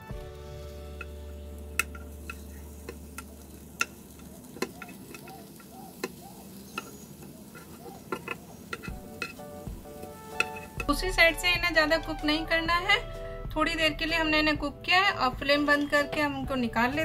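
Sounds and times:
faint frying: 0.0 - 13.3
wooden spatula scraping a frying pan: 1.8 - 11.0.

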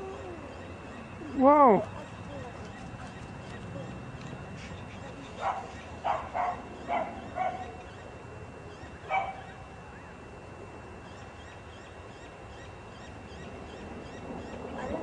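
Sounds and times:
dog barking: 5.4 - 7.8, 9.1 - 9.5.

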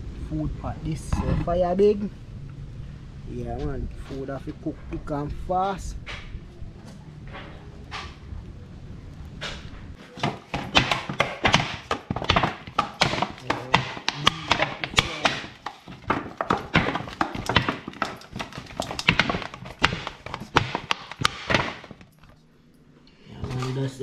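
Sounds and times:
dough thudding against metal bowl: 10.0 - 22.1.

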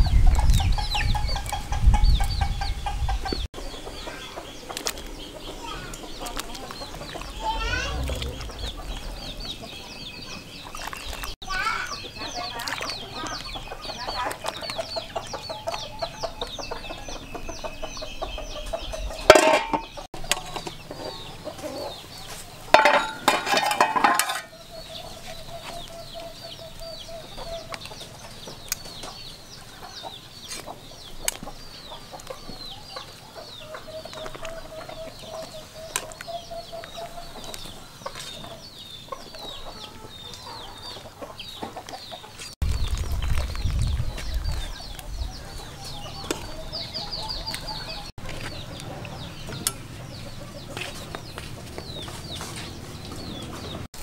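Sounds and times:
chicks cheeping: 0.0 - 22.7, 24.5 - 54.0
chickens clucking: 0.0 - 54.0.

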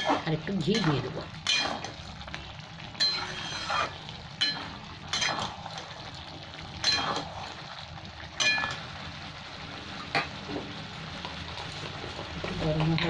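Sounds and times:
spatula clinking on metal pan: 3.0 - 3.6, 4.4 - 5.5, 6.8 - 7.2, 8.4 - 8.8
spatula scraping rice in pan: 3.0 - 4.0.

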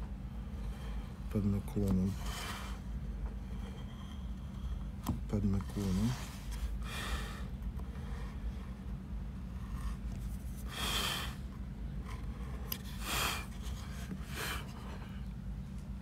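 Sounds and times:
carving knife cutting wood: 12.0 - 15.2.

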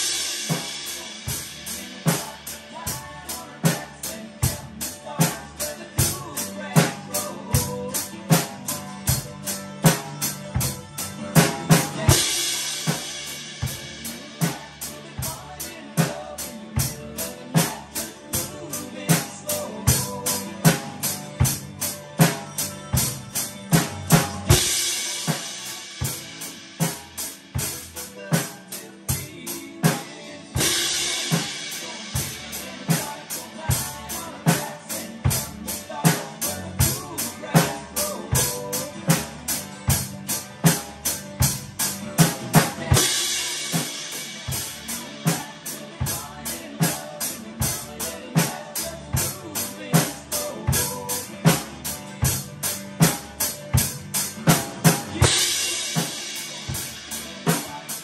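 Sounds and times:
drum kit steady beat: 0.0 - 58.0.

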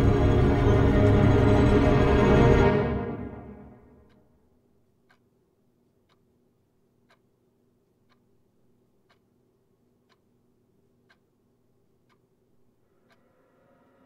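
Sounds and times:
low steady hum: 0.0 - 4.1
faint clock ticking: 2.9 - 14.0.

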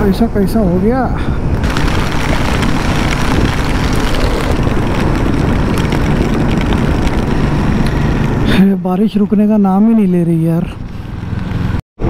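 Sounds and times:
wind rush on microphone: 0.0 - 8.6
motorcycle engine: 1.6 - 8.6.

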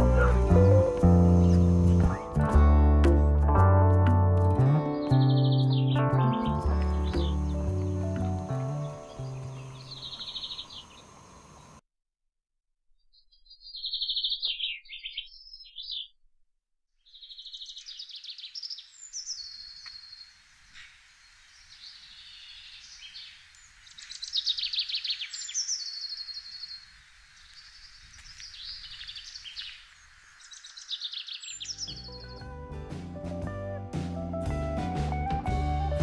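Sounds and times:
soft birdsong: 0.0 - 2.4, 5.0 - 11.8, 13.0 - 16.2, 17.0 - 32.5.

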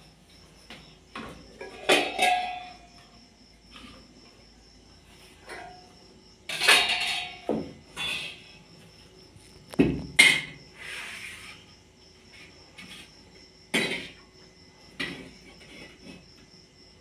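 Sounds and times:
metal clinks and knocks: 1.2 - 3.1, 6.5 - 8.6.

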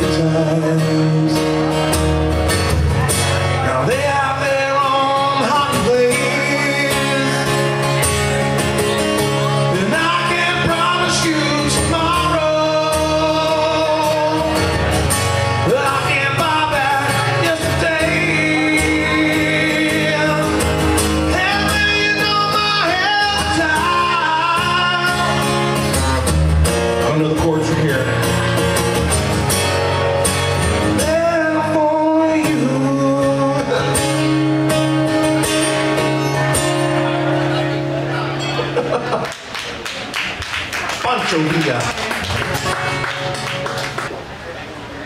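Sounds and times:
man singing into a microphone: 0.0 - 2.0, 3.4 - 8.2, 9.5 - 26.0, 30.8 - 35.2
acoustic guitar strumming: 0.0 - 44.9.

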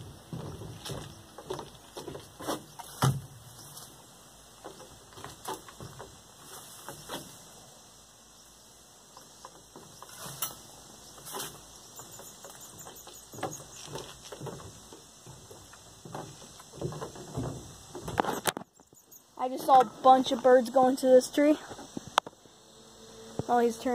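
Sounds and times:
light knocks and rustles: 0.0 - 4.0, 4.6 - 7.6, 9.1 - 19.0.

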